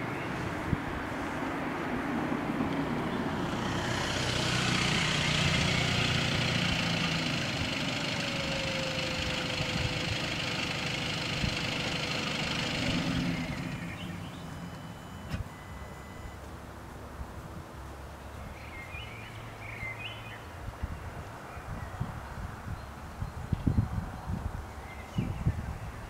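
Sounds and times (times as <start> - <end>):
vehicle passing: 0.0 - 20.6.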